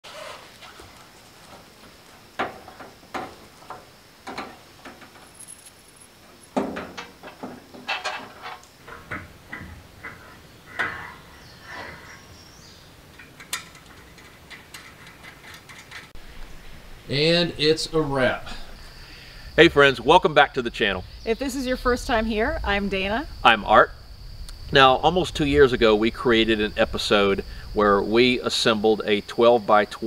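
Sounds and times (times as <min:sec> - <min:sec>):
metal beams clanking and rattling: 0:06.4 - 0:11.0.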